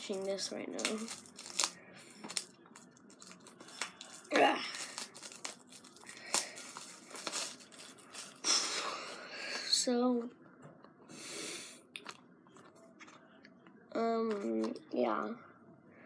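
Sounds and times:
plastic shrink-wrap crinkling and tearing: 0:00.0 - 0:08.8.

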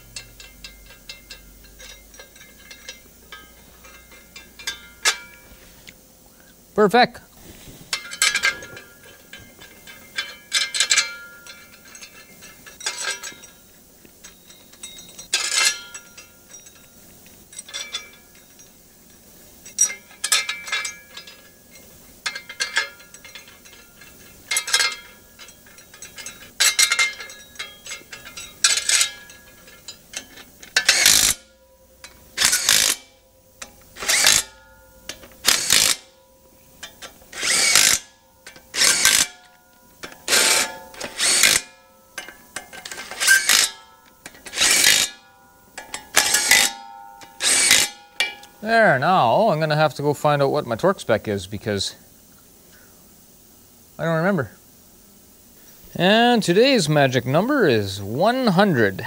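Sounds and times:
ratchet clicking: 0:00.0 - 0:05.4, 0:19.6 - 0:36.2, 0:36.8 - 0:45.2, 0:45.8 - 0:48.6.

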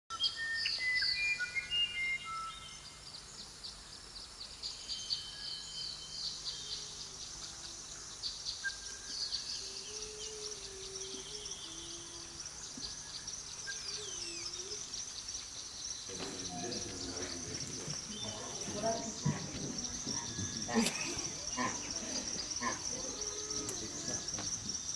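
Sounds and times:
birds and insects chirping: 0:00.1 - 0:24.9
whistled bird notes: 0:04.8 - 0:15.2.

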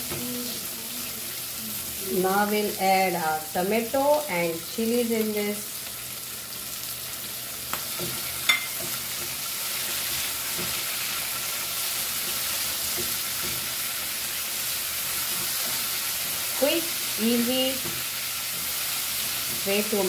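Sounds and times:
vegetables sizzling in hot oil: 0:00.0 - 0:20.0
spatula stirring: 0:07.8 - 0:20.0.

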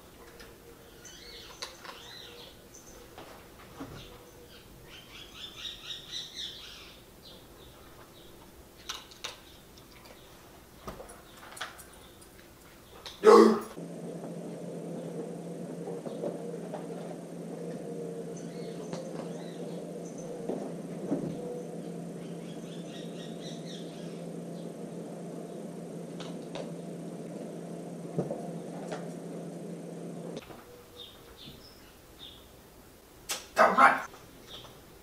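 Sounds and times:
steady low hum: 0:00.0 - 0:35.0
pet birds chirping: 0:00.2 - 0:13.2, 0:18.2 - 0:25.6, 0:30.5 - 0:32.6.

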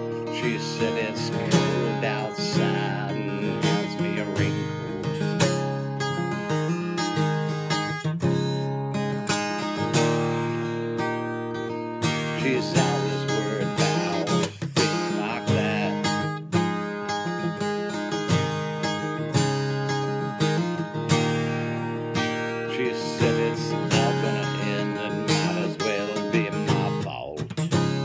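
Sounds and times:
acoustic guitar strumming: 0:00.0 - 0:28.0.

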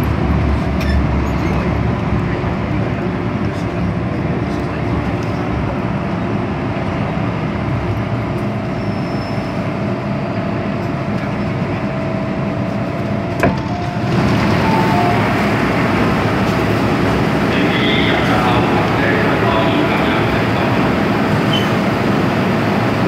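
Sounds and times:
train rumbling: 0:00.0 - 0:23.0
train doors clacking open: 0:12.9 - 0:22.6.

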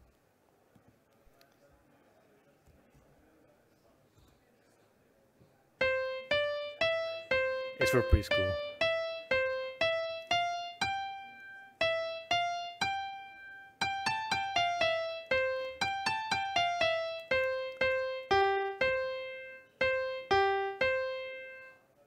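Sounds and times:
single piano notes melody: 0:05.8 - 0:21.8.

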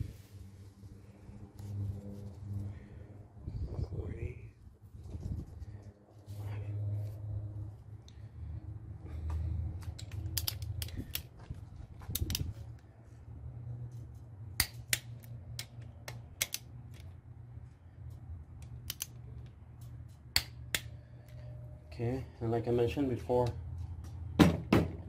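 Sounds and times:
torque wrench clicking: 0:12.1 - 0:12.5, 0:18.8 - 0:19.1.

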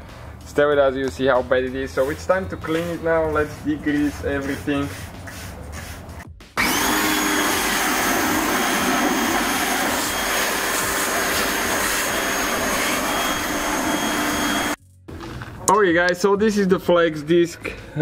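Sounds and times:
pressure washer running: 0:06.6 - 0:14.8
water jet blasting metal: 0:06.6 - 0:14.8.

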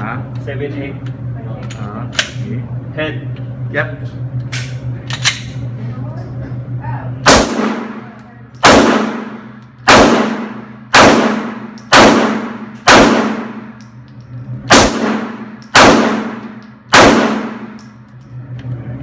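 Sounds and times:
pistol shots echoing indoors: 0:07.2 - 0:13.8, 0:14.7 - 0:17.9.

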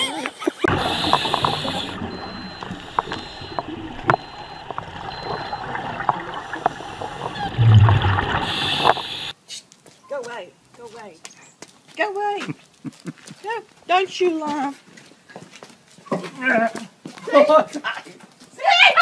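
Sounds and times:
diver breathing through regulator: 0:00.7 - 0:03.6, 0:07.0 - 0:09.3
burst of exhaled bubbles: 0:00.7 - 0:09.3
sharp clicks in water: 0:01.0 - 0:09.1.

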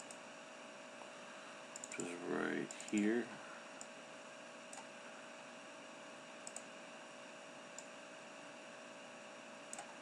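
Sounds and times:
computer mouse clicks: 0:00.0 - 0:00.2, 0:01.7 - 0:03.1, 0:04.7 - 0:04.9, 0:06.4 - 0:06.7, 0:07.7 - 0:08.0, 0:09.7 - 0:10.0
faint steady hiss and hum: 0:00.0 - 0:10.0.

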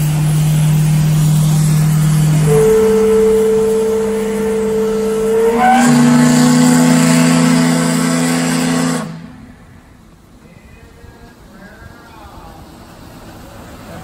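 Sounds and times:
steam whistle blowing: 0:01.1 - 0:09.7.

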